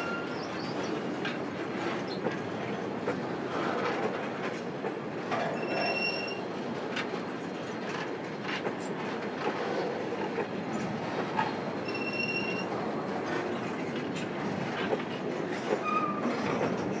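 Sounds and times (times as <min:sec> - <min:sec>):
high wheel squeal: 0:05.6 - 0:06.4, 0:11.8 - 0:12.7
train wheels rumbling over rail joints: 0:06.6 - 0:17.0.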